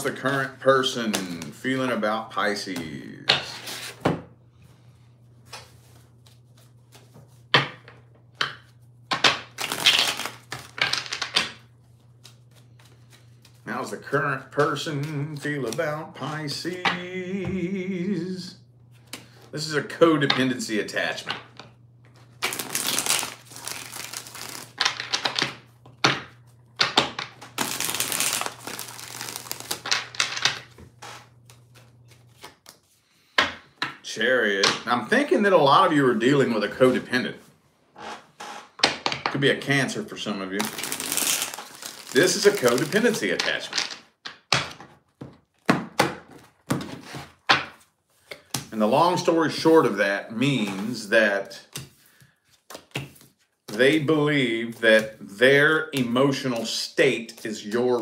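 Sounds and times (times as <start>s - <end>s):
cards being shuffled: 5.4s - 7.5s, 8.4s - 13.6s, 21.5s - 33.6s, 40.5s - 44.0s, 51.7s - 58.0s.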